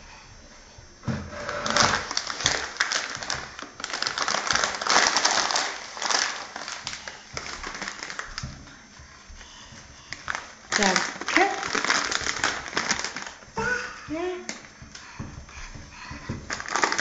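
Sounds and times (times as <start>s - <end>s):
plastic packet crinkling: 1.7s - 8.4s, 10.2s - 13.4s, 16.5s - 17.0s.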